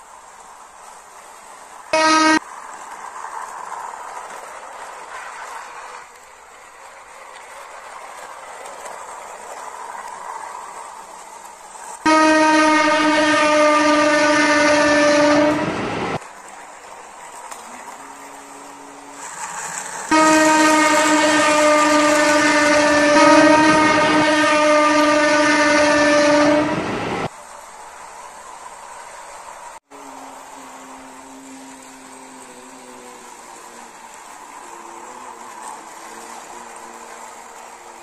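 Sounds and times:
toy train running on track: 0.0 - 12.1, 16.2 - 22.4, 28.4 - 38.0
toy train horn: 2.0 - 2.5, 12.0 - 16.0, 17.7 - 27.0, 30.0 - 34.0.

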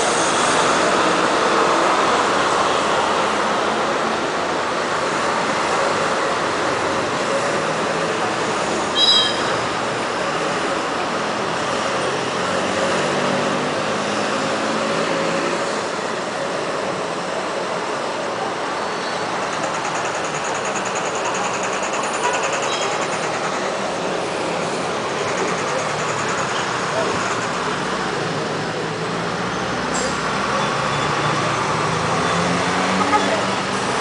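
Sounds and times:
city traffic noise: 0.0 - 34.0
diesel engine running: 19.2 - 29.1.

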